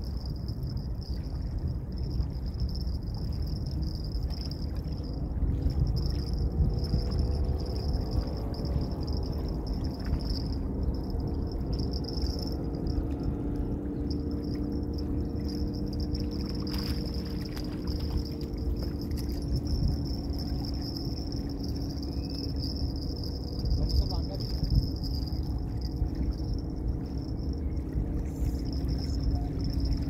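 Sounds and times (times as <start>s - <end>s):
distant engine hum: 0.0s - 30.0s
wind rumbling on microphone: 0.0s - 30.0s
high-pitched whine: 5.7s - 30.0s.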